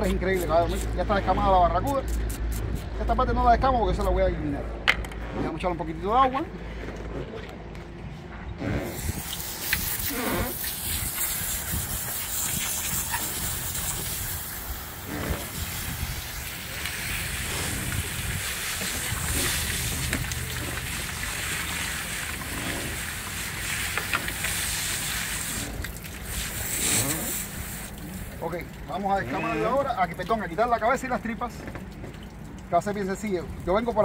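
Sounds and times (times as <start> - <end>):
hose spray hissing: 8.8 - 28.0.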